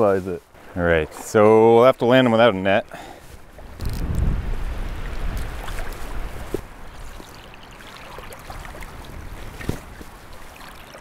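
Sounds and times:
stream water trickling: 0.4s - 11.0s
short splashes in water: 4.6s - 11.0s.

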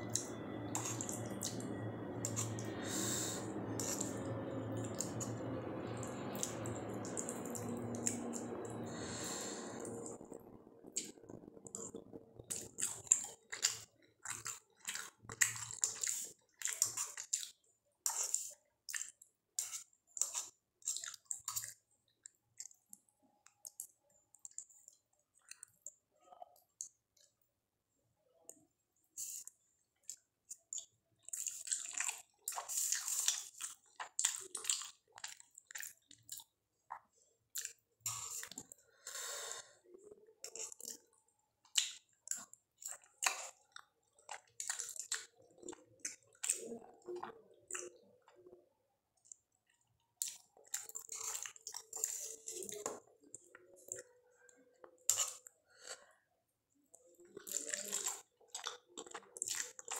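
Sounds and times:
wet chewing: 0.0s - 26.0s, 29.2s - 39.6s, 40.4s - 48.6s, 49.2s - 56.1s, 56.9s - 59.9s
slurping noodles: 0.1s - 21.8s, 37.6s - 41.1s.

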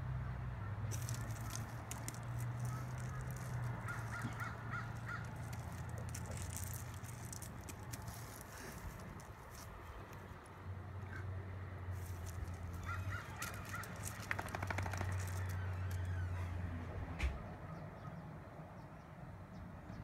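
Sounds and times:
gravel crunching under dog: 0.9s - 10.5s, 11.9s - 16.6s.

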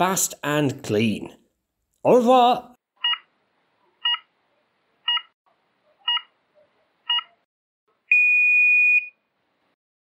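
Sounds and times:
long steady beep: 8.1s - 9.2s.

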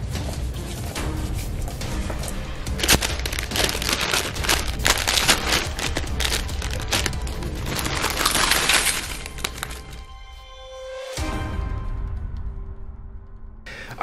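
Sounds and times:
low music: 0.0s - 12.8s
plastic chip bag rustling: 2.7s - 10.0s
chips clattering into metal bowl: 2.8s - 10.0s.

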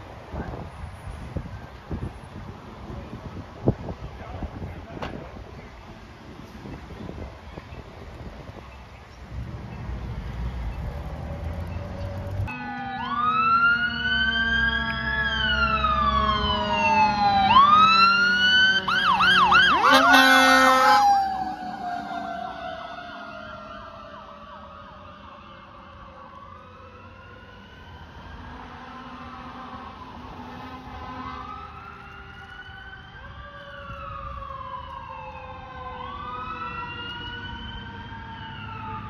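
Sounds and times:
fire engine siren: 9.9s - 39.0s.

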